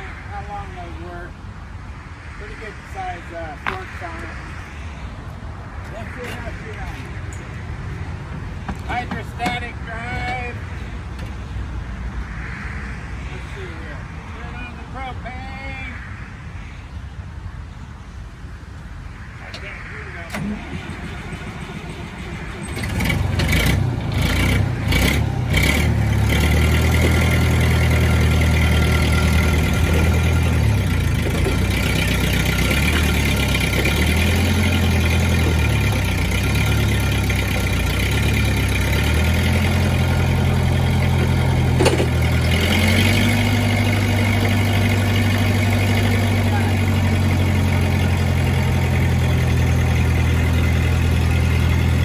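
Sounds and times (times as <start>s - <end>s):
forklift engine running: 19.6s - 52.0s.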